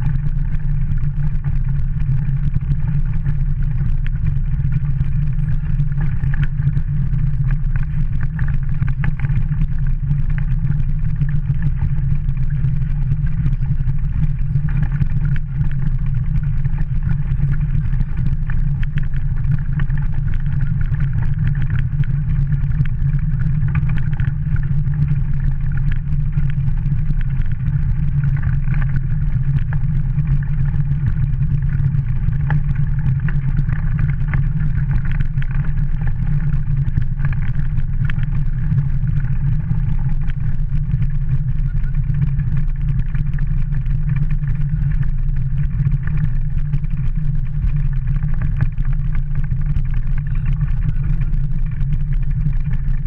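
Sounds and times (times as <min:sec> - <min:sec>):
kart wheels rumbling on gravel: 0:00.7 - 0:53.0.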